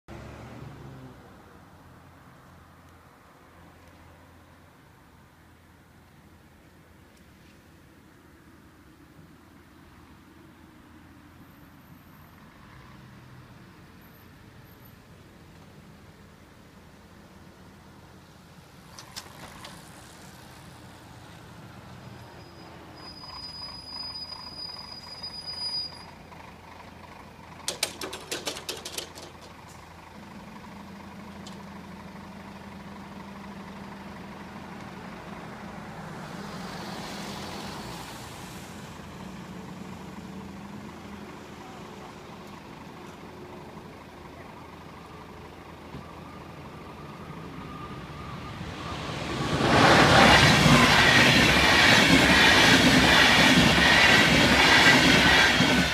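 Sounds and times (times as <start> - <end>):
clatter of clicks: 18.9 - 19.8, 27.6 - 29.8.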